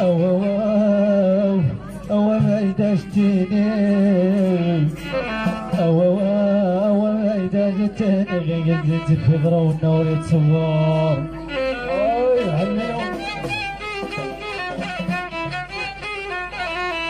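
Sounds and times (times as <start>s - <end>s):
person singing: 0.0s - 13.6s
violin playing wavering melody: 0.0s - 17.0s
frame drum strikes: 13.0s - 16.2s.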